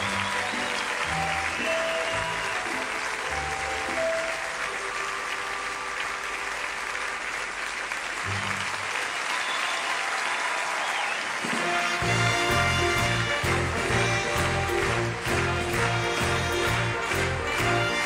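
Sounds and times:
music playing: 0:00.0 - 0:07.4, 0:11.5 - 0:18.0
large audience applauding: 0:00.0 - 0:18.0.

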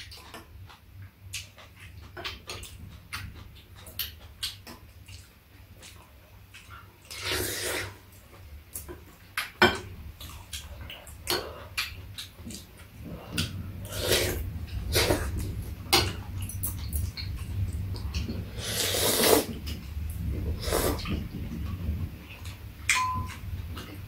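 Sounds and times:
people slurping and chewing: 0:01.3 - 0:08.4, 0:10.2 - 0:22.6
chopsticks and spoons clicking bowls: 0:22.9 - 0:23.4.

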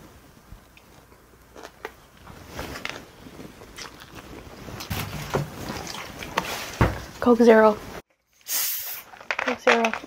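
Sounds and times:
chewing food: 0:02.8 - 0:04.9.

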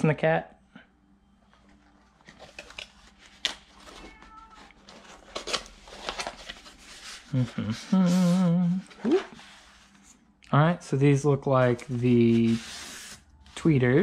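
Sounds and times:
cardboard box rustling: 0:04.8 - 0:07.5.

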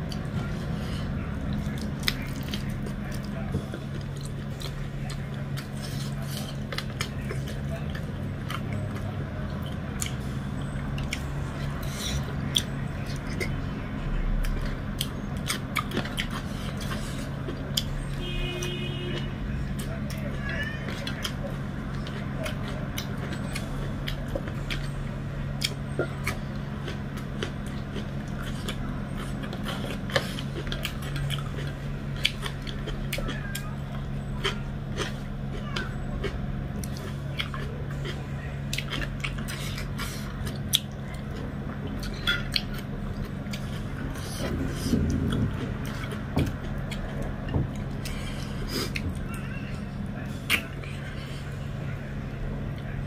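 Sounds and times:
chewing with lip smacks: 0:00.0 - 0:53.0
steady low hum: 0:00.0 - 0:53.0.

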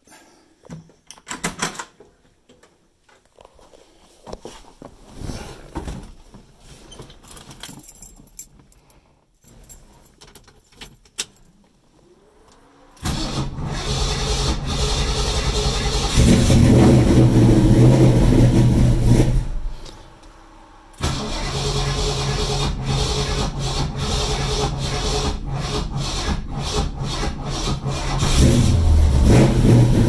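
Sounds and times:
keys jangling: 0:07.1 - 0:11.6
car engine cranking and starting: 0:11.9 - 0:30.0.

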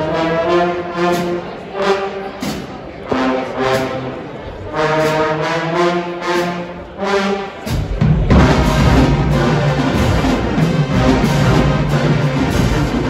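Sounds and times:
brass band playing: 0:00.0 - 0:13.0
drums: 0:02.4 - 0:04.0, 0:07.6 - 0:13.0.

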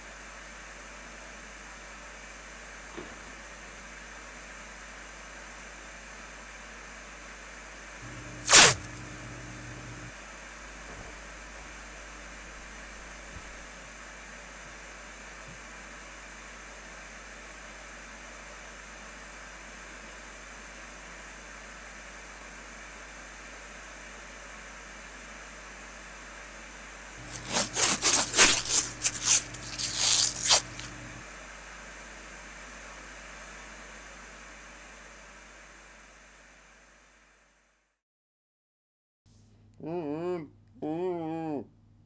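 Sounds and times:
low hum: 0:08.0 - 0:10.1
duct tape ripping off roll: 0:08.3 - 0:09.0, 0:27.2 - 0:31.2.

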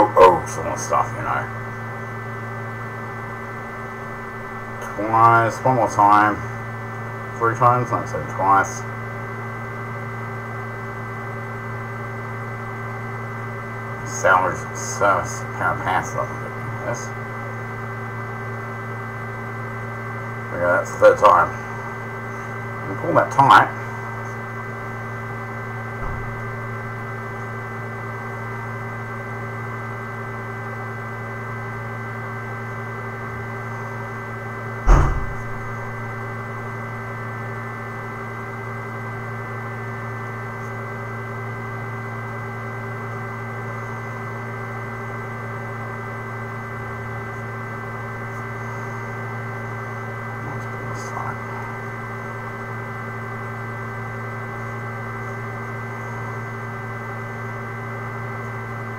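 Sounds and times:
electrical hum: 0:00.0 - 0:58.9
sharp thump: 0:26.0 - 0:27.0, 0:34.9 - 0:36.2.

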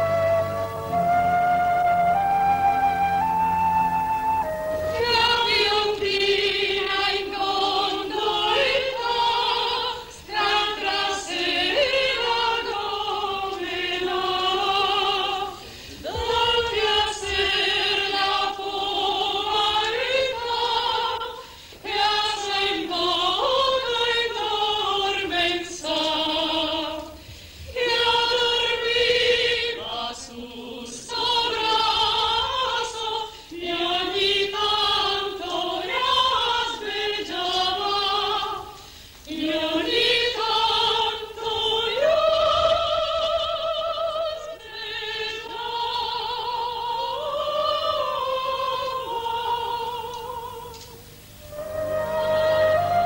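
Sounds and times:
group of voices singing: 0:00.0 - 0:53.0
singers breathing: 0:15.6 - 0:16.1, 0:21.4 - 0:21.8, 0:27.2 - 0:27.8, 0:33.3 - 0:33.6, 0:38.8 - 0:39.3.

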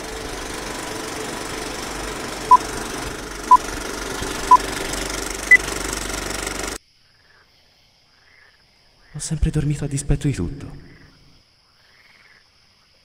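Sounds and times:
film projector whirr and clatter: 0:00.0 - 0:06.8.

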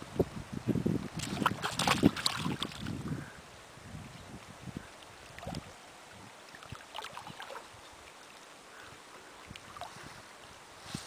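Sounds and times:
water sloshing and splashing: 0:01.1 - 0:03.0, 0:05.0 - 0:05.8, 0:06.4 - 0:08.6, 0:09.2 - 0:10.2.

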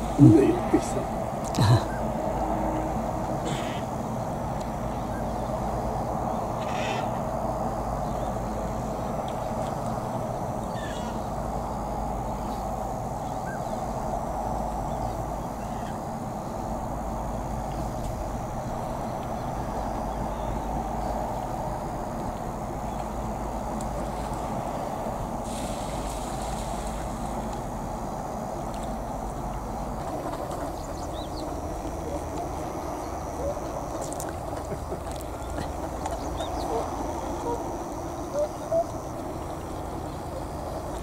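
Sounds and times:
waterfowl calls: 0:03.4 - 0:04.0, 0:06.4 - 0:07.3, 0:10.7 - 0:11.4, 0:29.4 - 0:41.0.

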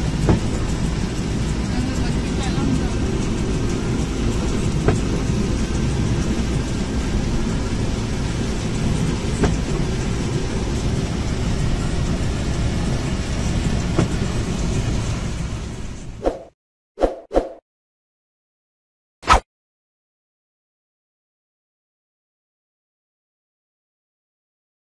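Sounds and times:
rain noise: 0:00.0 - 0:16.2
engine and road rumble: 0:00.0 - 0:16.5.

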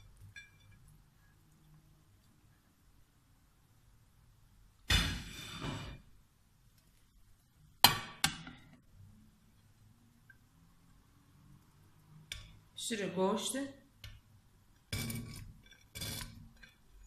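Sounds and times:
plate scraping a pot: 0:05.1 - 0:06.1, 0:14.9 - 0:16.8.

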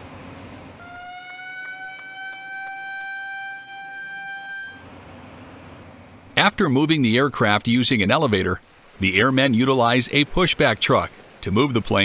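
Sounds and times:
warning horn high tone: 0:00.8 - 0:05.2.

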